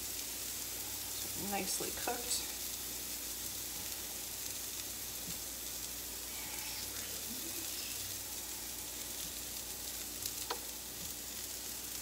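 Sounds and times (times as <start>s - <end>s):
vegetables sizzling on griddle: 0.0s - 12.0s.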